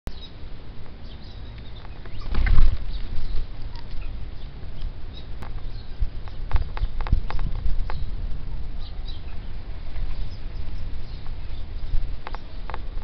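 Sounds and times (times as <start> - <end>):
bird wings flapping: 2.1 - 3.5.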